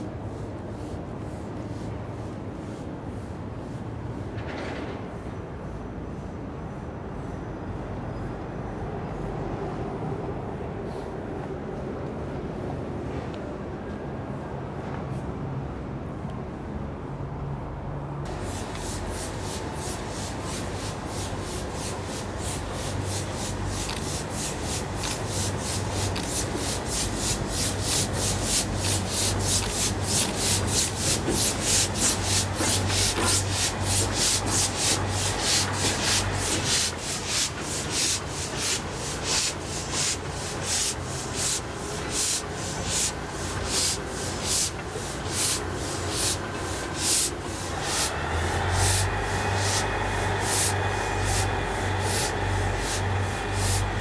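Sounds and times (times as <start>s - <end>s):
diesel engine low hum: 17.1s - 54.0s
steam locomotive hissing puffs: 18.3s - 54.0s.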